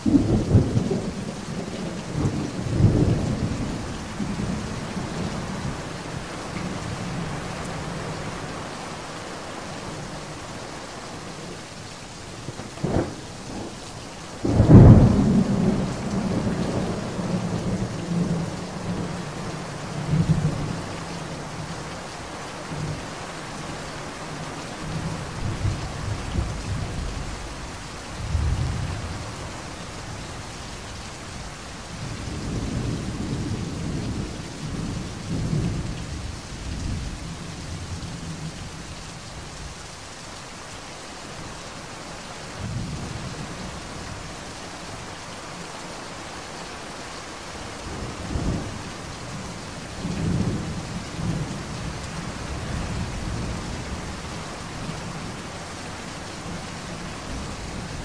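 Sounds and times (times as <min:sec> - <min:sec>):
low rolling thunder: 0:00.0 - 0:07.2, 0:14.4 - 0:20.9, 0:24.9 - 0:29.6, 0:31.9 - 0:38.7, 0:47.9 - 0:54.4
heavy rain: 0:00.0 - 0:58.0.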